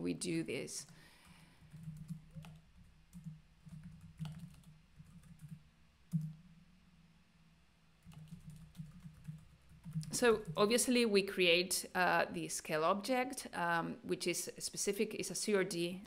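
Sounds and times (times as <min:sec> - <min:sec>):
typing on a computer keyboard: 0:01.2 - 0:06.4, 0:08.0 - 0:10.7.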